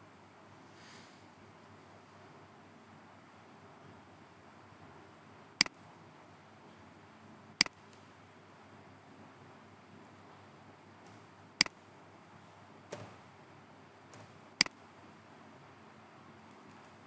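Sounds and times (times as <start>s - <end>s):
low steady hiss: 0.0s - 17.0s.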